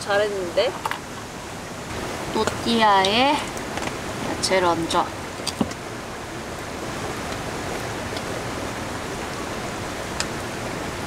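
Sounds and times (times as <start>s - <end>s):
rain falling: 0.0s - 11.0s.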